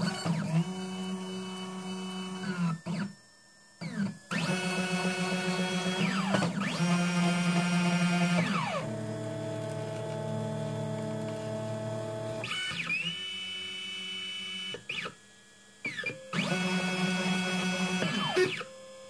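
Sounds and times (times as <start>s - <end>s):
stepper motors whining: 3.8s - 15.2s, 15.8s - 18.7s.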